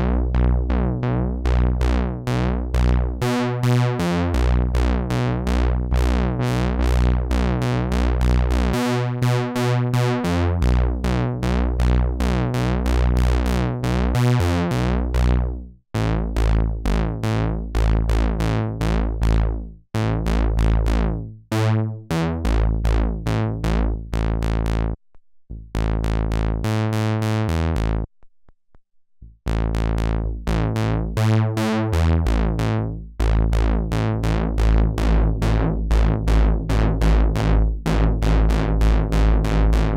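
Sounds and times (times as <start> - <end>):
synthesizer bass sequence: 0.0 - 28.1, 29.2 - 39.9
falling synthesizer filter sweep: 29.5 - 39.9.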